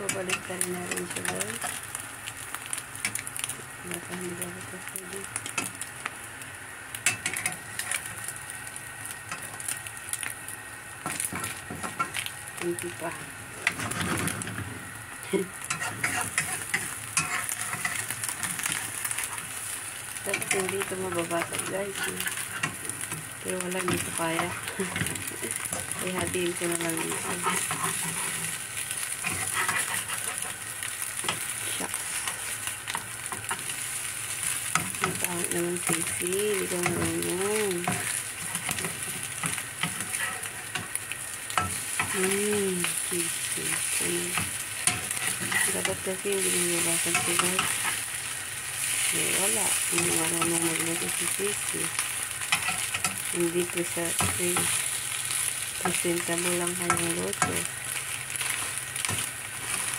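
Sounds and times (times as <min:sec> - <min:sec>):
egg sizzling in a pan: 0:00.0 - 0:59.9
spatula scraping and tapping: 0:15.7 - 0:19.4, 0:21.9 - 0:28.6, 0:29.2 - 0:30.6, 0:44.3 - 0:48.0, 0:52.5 - 0:53.2.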